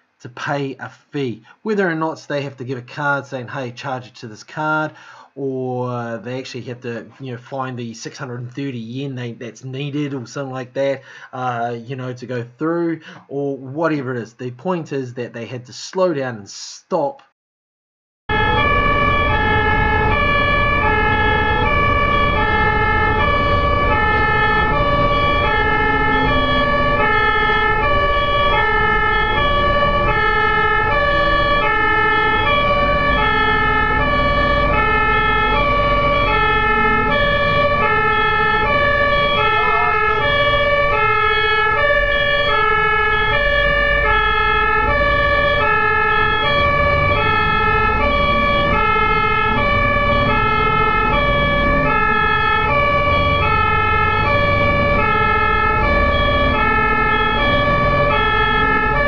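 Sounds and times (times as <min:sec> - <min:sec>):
two-tone siren: 0:18.3 - 0:59.0
tyres on road: 0:18.3 - 0:59.0
vehicle engine rumble: 0:18.3 - 0:59.0.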